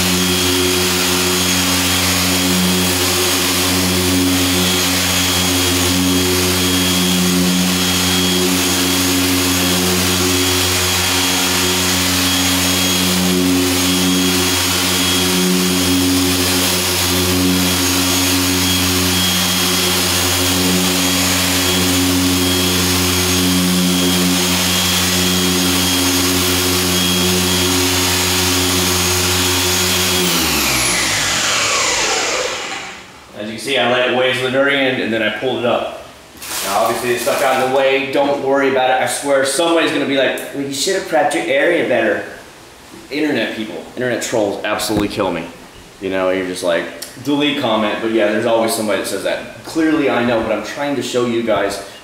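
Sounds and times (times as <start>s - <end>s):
polisher motor humming: 0.0s - 33.2s.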